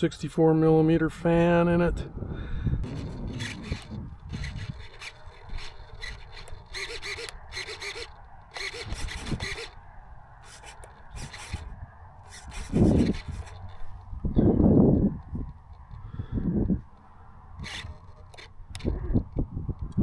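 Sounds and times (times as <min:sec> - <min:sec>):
wind rumble on microphone: 0:00.0 - 0:20.0
scratchy rustling: 0:12.3 - 0:14.0.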